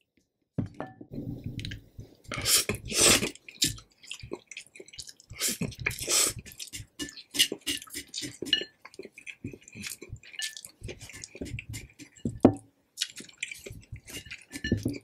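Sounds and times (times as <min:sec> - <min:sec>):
person slurping noodles: 0:02.3 - 0:03.8, 0:05.4 - 0:08.5.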